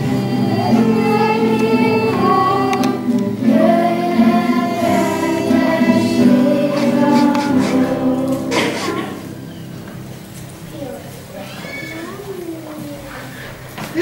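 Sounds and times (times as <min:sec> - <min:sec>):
group of voices singing: 0:00.0 - 0:09.5.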